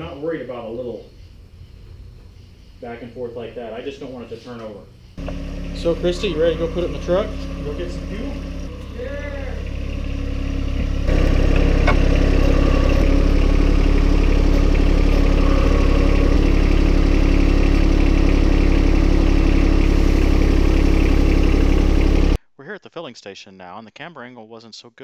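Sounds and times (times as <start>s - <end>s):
tractor diesel engine running: 5.2s - 22.4s.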